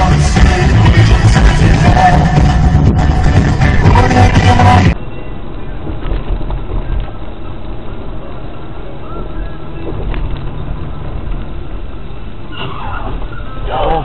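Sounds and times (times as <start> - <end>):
car engine and road noise: 0.0 - 14.0.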